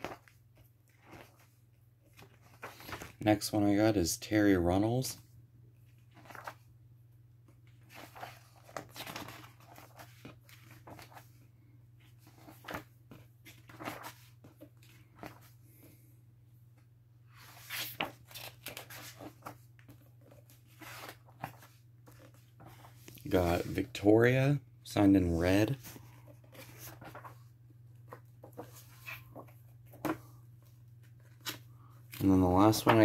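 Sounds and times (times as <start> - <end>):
book pages rustling: 0.0 - 3.2, 5.8 - 6.7, 7.5 - 11.4, 12.0 - 16.0, 17.3 - 24.0, 25.6 - 33.0.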